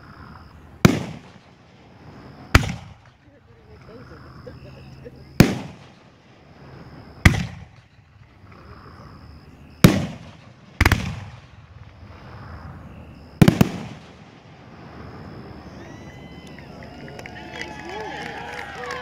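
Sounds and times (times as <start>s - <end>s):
fireworks bangs with echoes: 0.8s - 3.8s, 5.3s - 15.8s.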